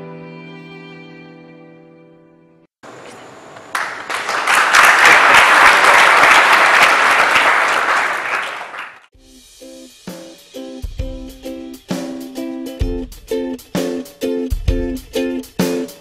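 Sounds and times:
audience applause: 3.7 - 9.1.

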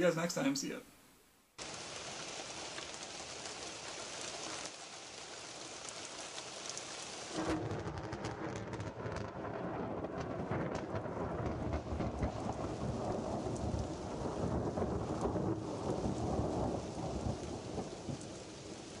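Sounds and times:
steady rain: 0.0 - 19.0
rolling thunder rumble: 7.4 - 19.0.

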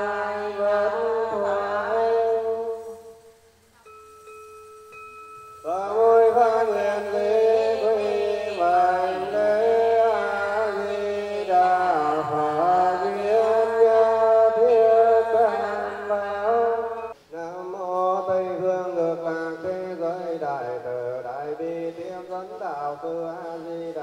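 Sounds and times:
steady ringing tone: 2.8 - 7.9, 16.6 - 17.2
ornamented wavering melody: 3.8 - 7.2.

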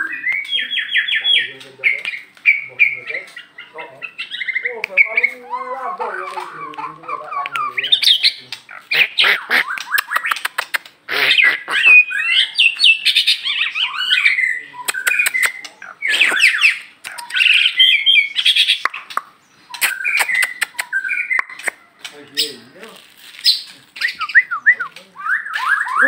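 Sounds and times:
songbird whistles and trills: 0.0 - 3.0, 9.0 - 22.6, 23.4 - 26.0.

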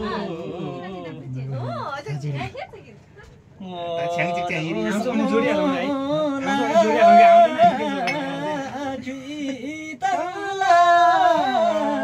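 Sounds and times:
man singing unaccompanied: 3.6 - 12.0.

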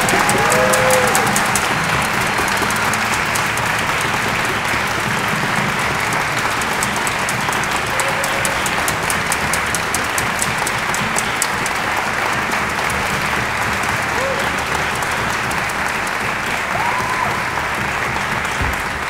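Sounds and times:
audience applauding: 0.0 - 19.0
single sharp claps: 0.0 - 19.0.

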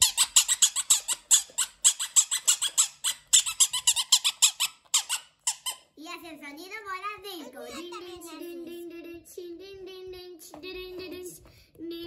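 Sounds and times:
rubber balls squeaking: 0.0 - 6.0.

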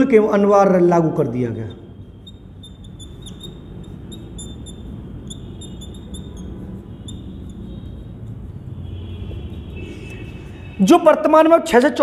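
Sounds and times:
writing squeaks on a board: 1.6 - 10.8.

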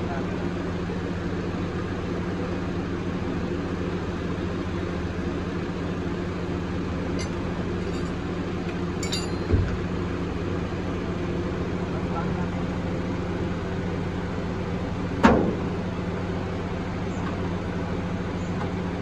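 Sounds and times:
car engine idling: 0.0 - 19.0
light metal clinks: 7.2 - 8.3, 9.0 - 9.7.

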